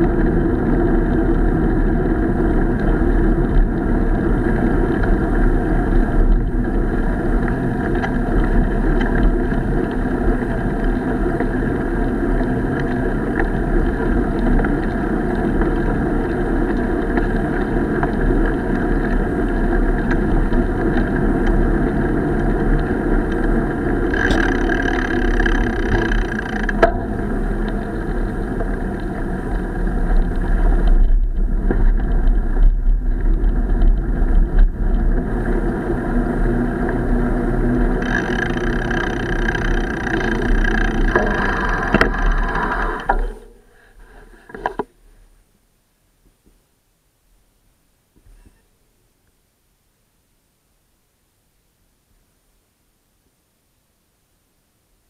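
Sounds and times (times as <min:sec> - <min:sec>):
rumbling ride noise: 0:00.0 - 0:44.9
wind buffeting: 0:18.6 - 0:44.3
high-pitched squeal: 0:24.1 - 0:27.2, 0:37.9 - 0:43.7.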